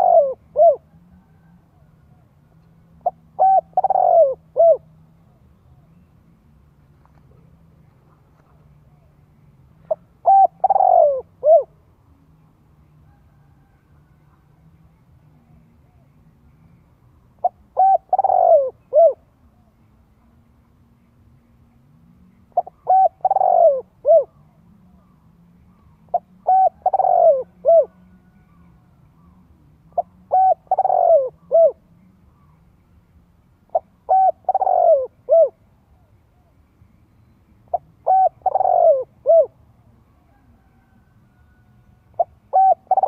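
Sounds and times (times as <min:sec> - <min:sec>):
dove cooing: 0:00.0 - 0:06.1, 0:09.8 - 0:11.8, 0:17.4 - 0:19.7, 0:22.6 - 0:32.6, 0:33.6 - 0:36.5, 0:37.7 - 0:39.6, 0:40.2 - 0:43.0.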